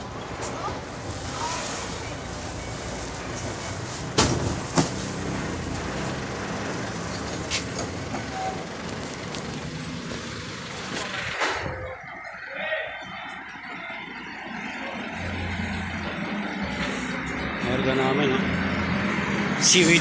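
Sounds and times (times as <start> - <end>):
truck engines idling: 0.0 - 20.0.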